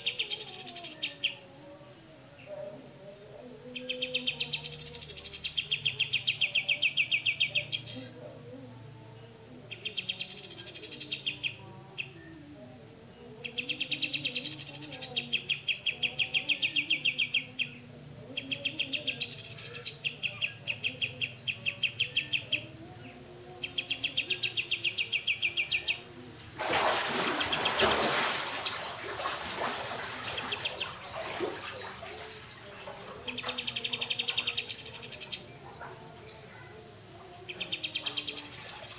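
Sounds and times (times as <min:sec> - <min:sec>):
bird singing rapid repeated notes: 0:18.4 - 0:22.7, 0:33.2 - 0:35.6, 0:37.5 - 0:38.9.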